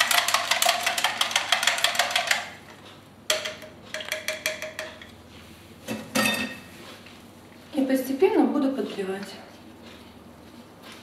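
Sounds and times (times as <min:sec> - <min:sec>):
utensil tapping plastic jug: 0:03.3 - 0:05.1.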